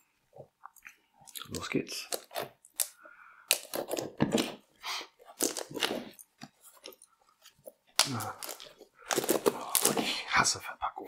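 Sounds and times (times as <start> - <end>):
shrink wrap crinkling: 5.3 - 10.2.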